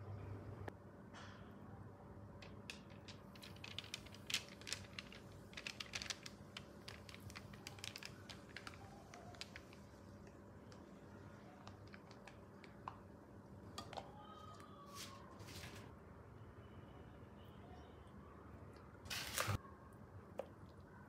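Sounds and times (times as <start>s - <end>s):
caramel clicking and crackling: 2.4s - 13.2s.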